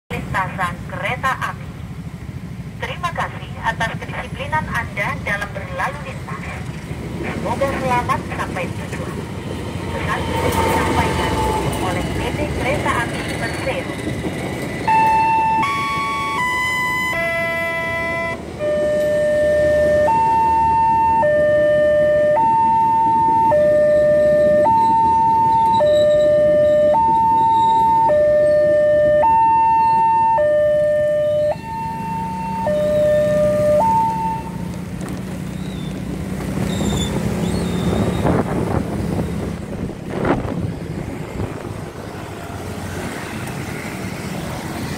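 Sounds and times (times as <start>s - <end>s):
passing train rumble: 0.1s - 44.9s
two-tone crossing alarm: 14.8s - 34.7s.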